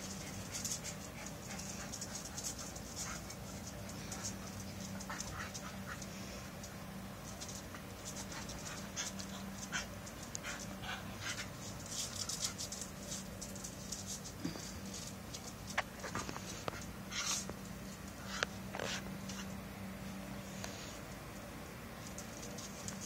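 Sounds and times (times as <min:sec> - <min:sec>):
dog panting: 0:00.0 - 0:06.6
steady low hum: 0:00.0 - 0:23.0.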